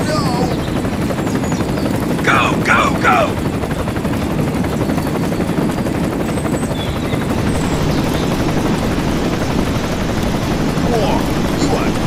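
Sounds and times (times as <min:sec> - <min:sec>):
helicopter rotor chop: 0:00.0 - 0:12.0.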